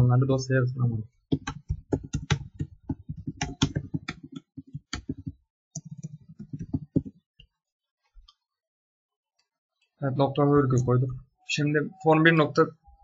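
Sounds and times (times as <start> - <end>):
computer keyboard typing: 1.3 - 7.2.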